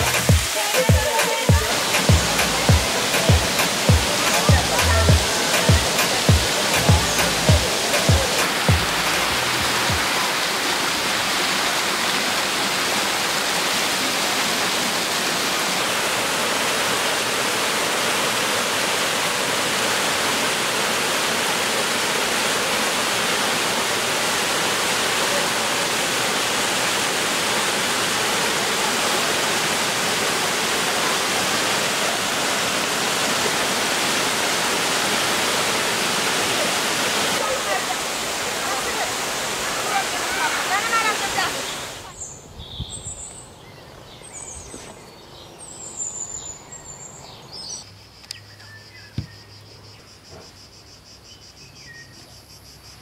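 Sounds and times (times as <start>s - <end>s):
stream rushing over rocks: 0.0s - 42.3s.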